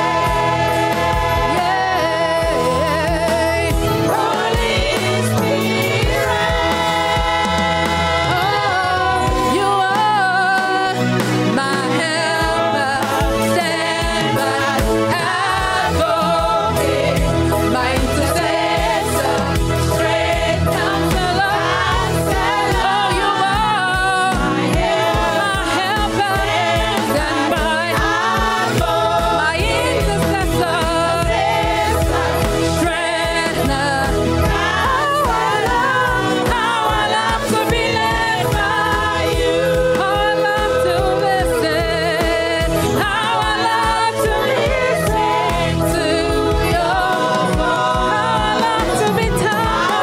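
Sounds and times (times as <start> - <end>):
backing music with beat: 0.0 - 50.0
woman singing into microphone: 0.0 - 50.0.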